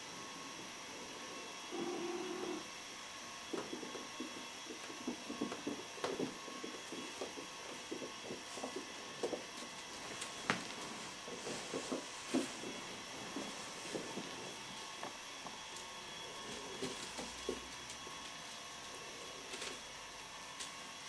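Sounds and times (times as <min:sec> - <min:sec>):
steady background hiss: 0:00.0 - 0:21.0
kittens thumping and scuffling: 0:03.5 - 0:15.2, 0:16.4 - 0:18.2.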